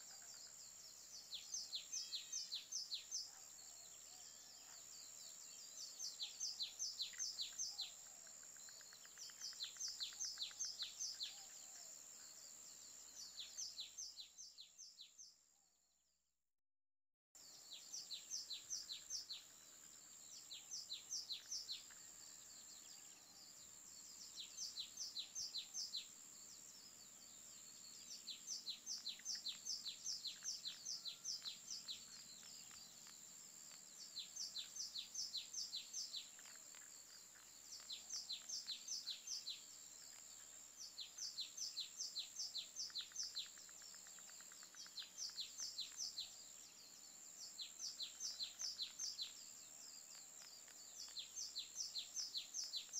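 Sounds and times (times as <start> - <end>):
bird chirping: 0.0 - 15.5, 17.4 - 52.9
steady high hiss: 17.4 - 52.9.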